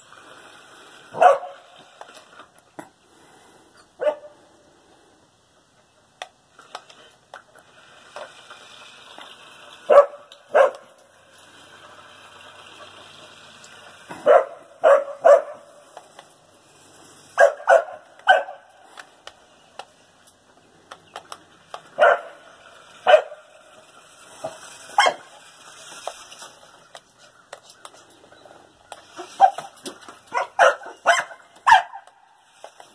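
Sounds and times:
dog barking: 0:01.1 - 0:01.6, 0:04.0 - 0:04.4, 0:09.9 - 0:10.9, 0:14.2 - 0:15.8, 0:17.4 - 0:18.7, 0:22.0 - 0:22.4, 0:23.0 - 0:23.4, 0:25.0 - 0:25.3, 0:30.3 - 0:32.0.

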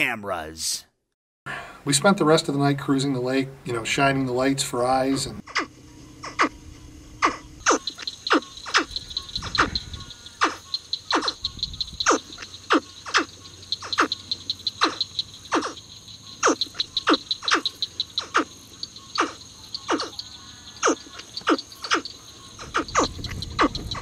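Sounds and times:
frogs calling with downward sweeps: 0:04.8 - 0:24.0.

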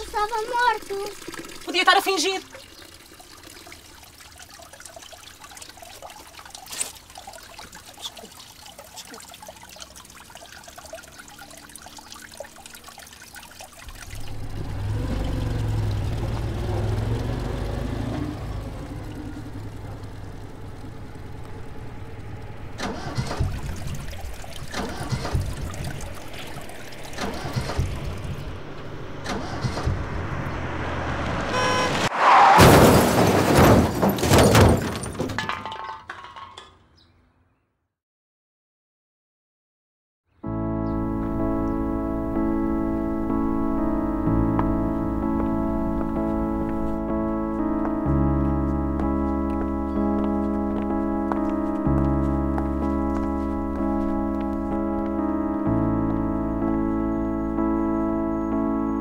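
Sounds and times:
car engine and road rumble: 0:02.8 - 0:35.2, 0:40.5 - 0:59.0
car body knocks and rattles: 0:32.6 - 0:35.4.

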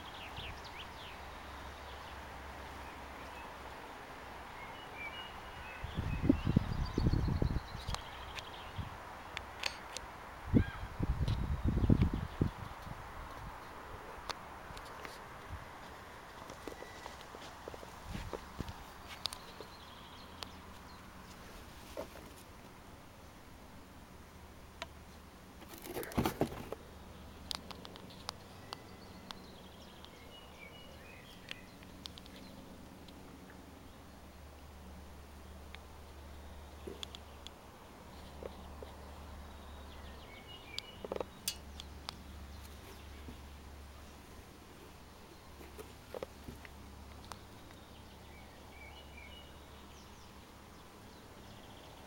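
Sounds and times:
faint outdoor background noise: 0:00.0 - 0:52.0
scraping and rustling on concrete: 0:20.7 - 0:22.7, 0:25.6 - 0:26.8
faint clicks: 0:31.4 - 0:33.2.

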